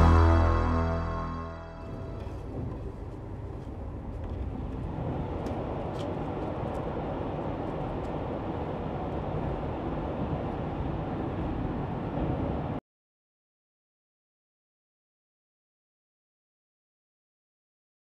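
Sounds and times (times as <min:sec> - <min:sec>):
train rumble from inside carriage: 0:01.8 - 0:12.8.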